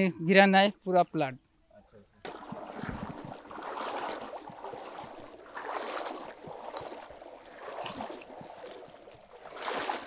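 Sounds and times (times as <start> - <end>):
water sloshing around wading legs: 2.2 - 10.0.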